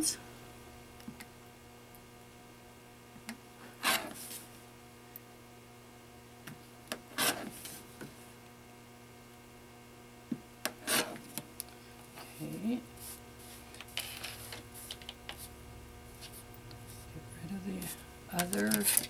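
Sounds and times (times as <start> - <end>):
electrical hum: 0.0 - 19.0
rotary cutter rasping through fabric: 3.8 - 4.2, 7.1 - 7.6, 10.7 - 11.3.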